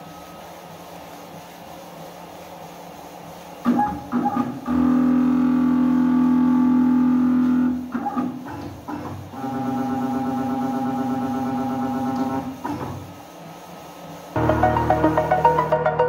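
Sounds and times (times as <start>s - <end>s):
held music chords: 14.4s - 16.0s.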